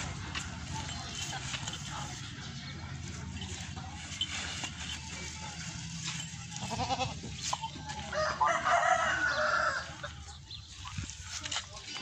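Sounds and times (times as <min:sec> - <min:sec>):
rooster crowing: 0:08.1 - 0:10.0.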